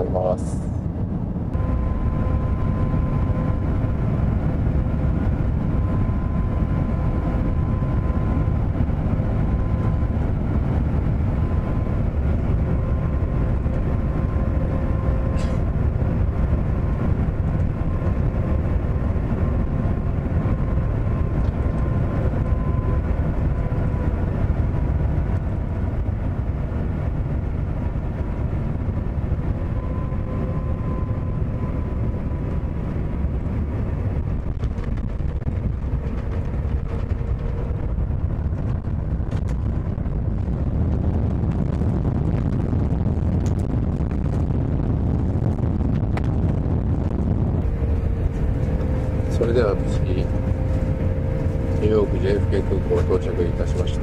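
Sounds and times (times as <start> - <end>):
airliner cabin engine rumble: 0.0 - 54.0
steady engine tones: 0.0 - 54.0.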